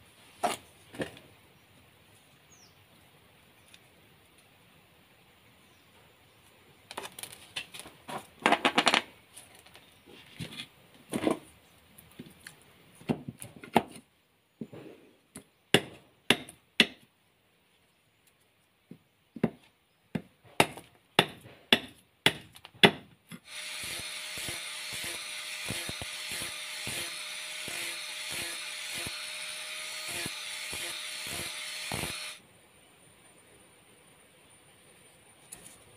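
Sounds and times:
blade chopping wood: 20.2 - 29.2
angle grinder sanding wood: 23.4 - 32.4.

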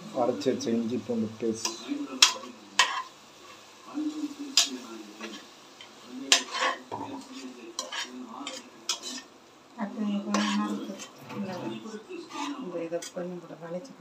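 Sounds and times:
stirring thick masala: 0.2 - 9.5, 10.1 - 13.9
metal spoon scraping pot: 4.6 - 9.3, 10.3 - 13.3.

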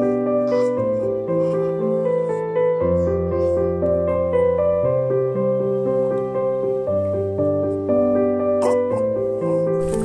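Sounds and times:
gentle piano music: 0.0 - 10.0.

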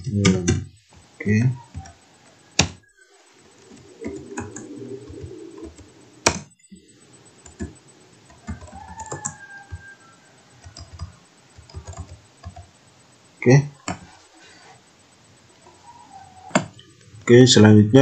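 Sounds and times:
keyboard typing: 1.2 - 2.0, 3.5 - 9.9, 10.6 - 12.7, 13.8 - 14.2.

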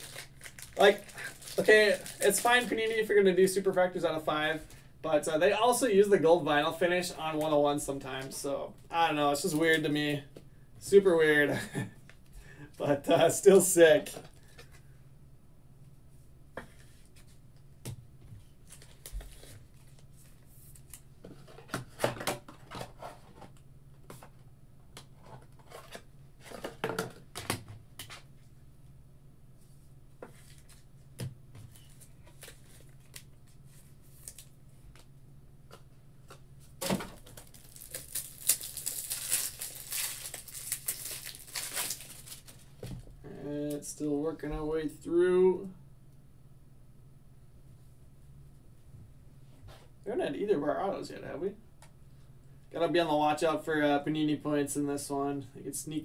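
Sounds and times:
wrapper crinkling and tearing: 0.0 - 3.0, 37.2 - 42.7
cards clicking and rustling: 35.7 - 42.6.

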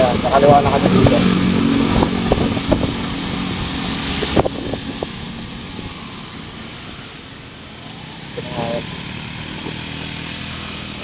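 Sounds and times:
wind rushing over microphone: 0.0 - 7.1
motorcycle engine: 0.0 - 11.0.

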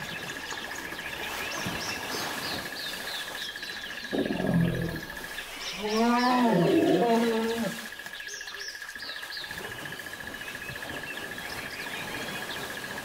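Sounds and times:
hippo grunting: 4.1 - 5.2, 5.8 - 7.9.

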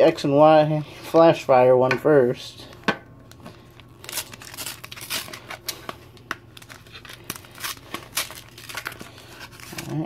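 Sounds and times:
packaging crinkling: 3.2 - 10.0.

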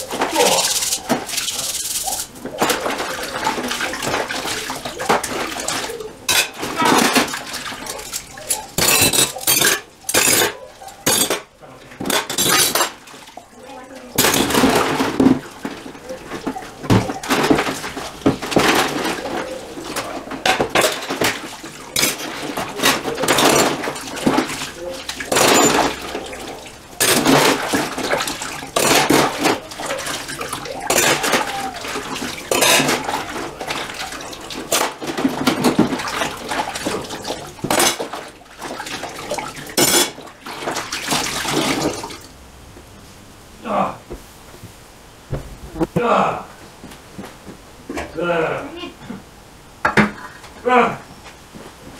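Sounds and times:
dishes clinking in metal sink: 0.0 - 42.2
water swishing and splashing: 0.0 - 42.5.

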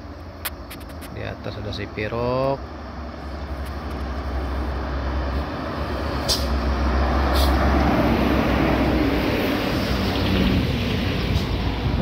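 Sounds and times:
bus passing: 0.0 - 12.0.

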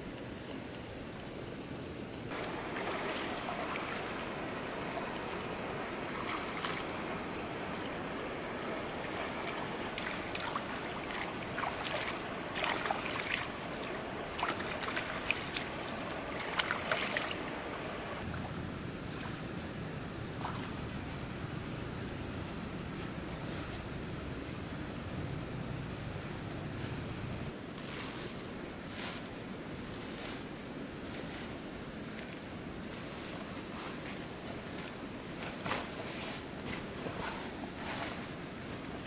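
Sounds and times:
shallow river flowing: 2.3 - 22.0.

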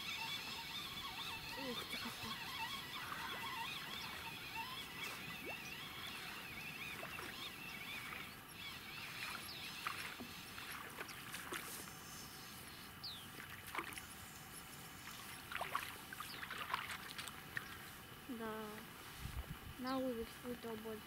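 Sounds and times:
faint bird chirps: 0.0 - 11.3, 19.8 - 20.2
waves lapping at riverbank: 0.0 - 19.3.

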